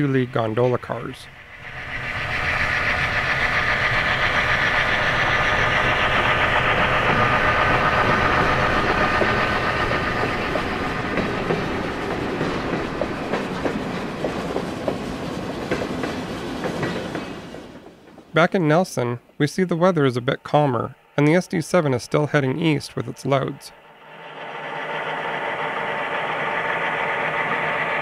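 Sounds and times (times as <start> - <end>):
diesel locomotive engine: 0.0 - 28.0
train wheels clicking over rail joints: 1.6 - 19.4.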